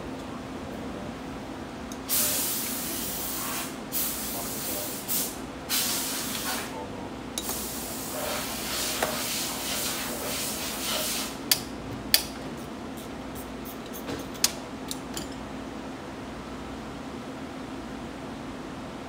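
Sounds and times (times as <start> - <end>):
spraying hiss: 2.1 - 6.7.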